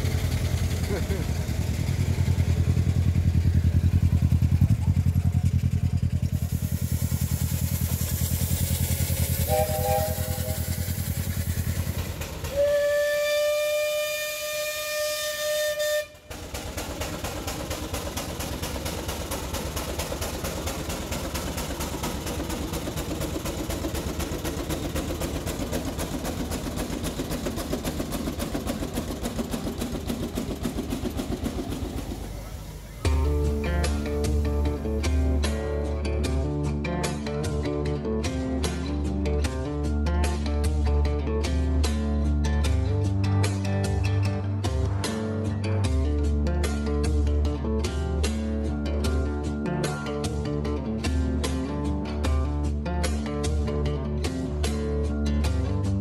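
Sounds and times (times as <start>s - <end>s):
steam engine rapid beat: 0.0s - 36.0s
engine humming with low pulse: 0.0s - 56.0s
steam whistle blast: 8.8s - 16.3s.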